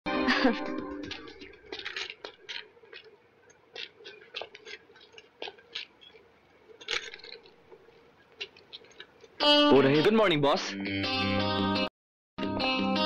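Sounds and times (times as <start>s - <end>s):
faint steady hum: 0.1s - 9.7s
quiet irregular clicks: 1.1s - 9.4s.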